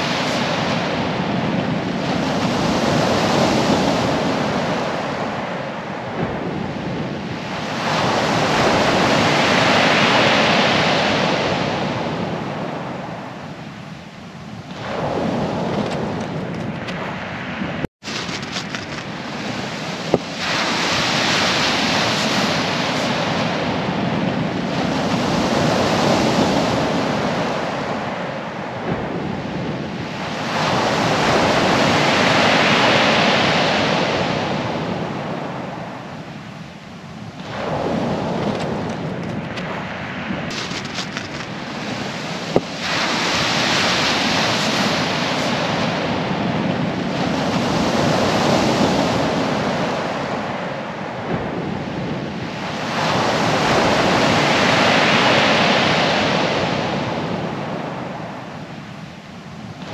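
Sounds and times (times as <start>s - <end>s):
waves breaking on shingle: 18.0s - 23.2s, 37.8s - 46.5s.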